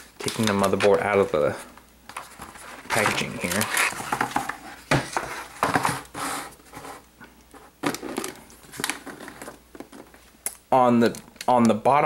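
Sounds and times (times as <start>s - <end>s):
cardboard box handling noise: 2.2s - 7.0s.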